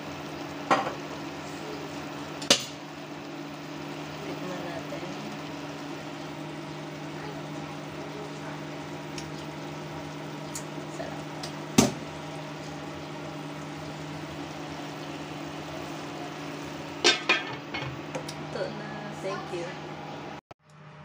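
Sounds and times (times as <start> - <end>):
pot simmering: 0.0 - 20.4
faint utensil ticks: 9.1 - 9.4, 10.5 - 10.7.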